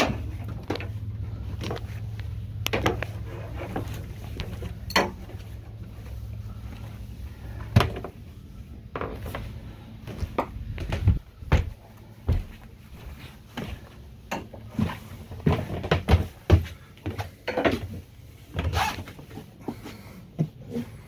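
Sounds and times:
low hum: 0.0s - 15.6s
footsteps on stairs: 9.0s - 18.0s.

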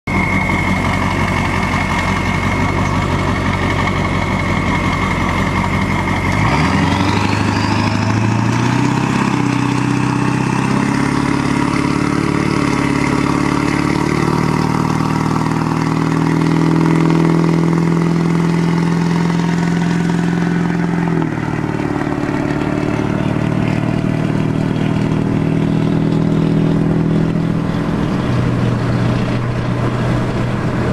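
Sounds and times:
diesel truck engine: 0.0s - 30.9s
high turbo whistle: 0.1s - 24.1s.

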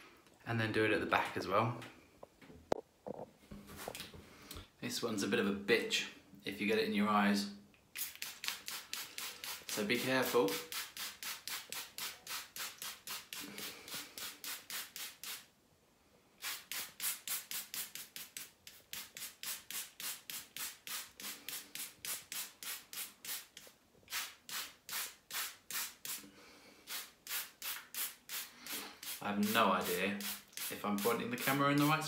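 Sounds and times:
trigger spray bottle squirting: 7.9s - 15.4s.

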